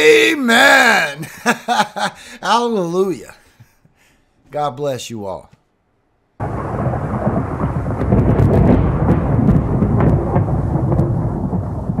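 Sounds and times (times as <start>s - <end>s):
rain: 6.4s - 12.0s
rolling thunder: 6.4s - 12.0s
sharp thunder cracks: 6.4s - 12.0s.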